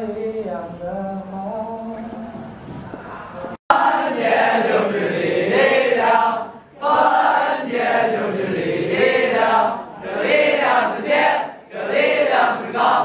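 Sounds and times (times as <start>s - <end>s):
students singing in unison: 2.4s - 13.0s.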